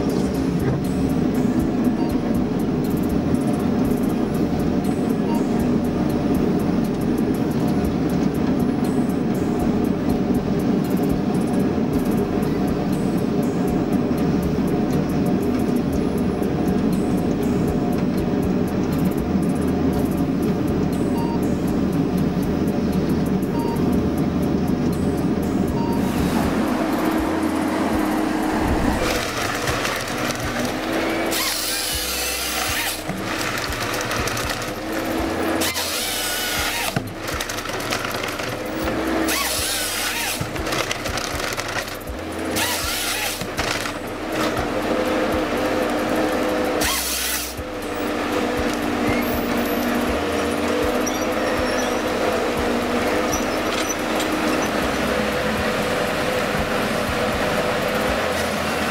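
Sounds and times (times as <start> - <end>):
forestry machine engine running: 0.0 - 58.9
bar saw cutting through logs: 26.0 - 47.6.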